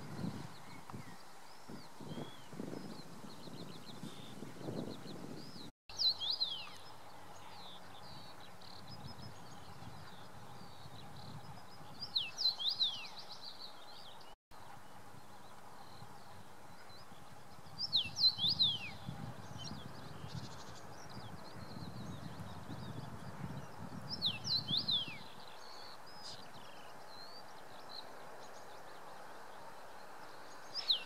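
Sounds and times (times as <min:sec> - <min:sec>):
low outdoor hiss: 0:24.4 - 0:31.0.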